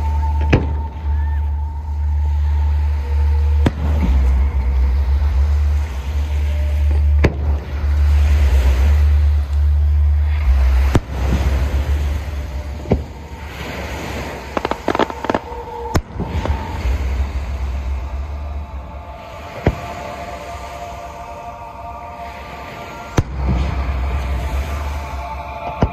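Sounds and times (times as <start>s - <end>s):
continuous low rumble: 0.0s - 25.9s
firework crackling: 10.5s - 18.4s.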